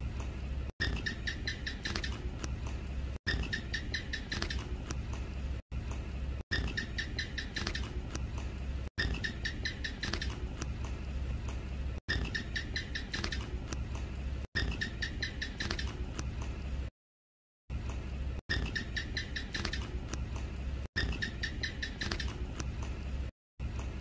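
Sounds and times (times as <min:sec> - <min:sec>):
steady low hum: 0:00.0 - 0:16.9
gecko chirping: 0:00.8 - 0:02.5, 0:03.3 - 0:04.9, 0:06.5 - 0:08.3, 0:09.0 - 0:10.7, 0:12.1 - 0:13.8, 0:14.6 - 0:16.1, 0:18.5 - 0:20.2, 0:21.0 - 0:22.7.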